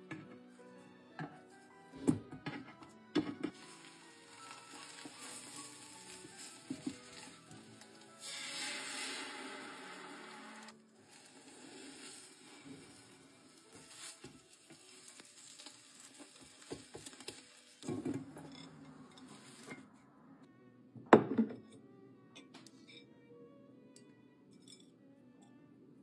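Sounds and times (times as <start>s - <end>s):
egg cooking in a pan: 3.2s - 19.8s
plate set down with a knock: 21.1s - 21.6s.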